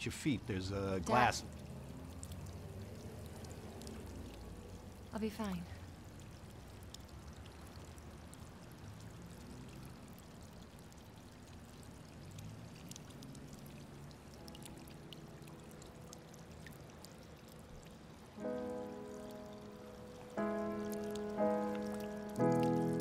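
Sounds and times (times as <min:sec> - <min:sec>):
soft sustained music notes: 0:14.2 - 0:23.0.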